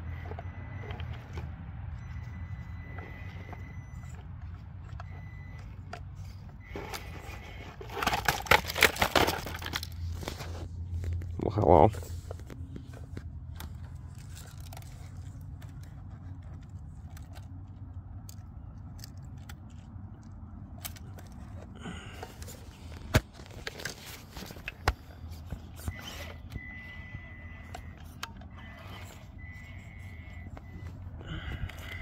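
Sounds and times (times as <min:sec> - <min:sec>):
motor and gears whining: 0:00.0 - 0:08.0, 0:20.8 - 0:32.0.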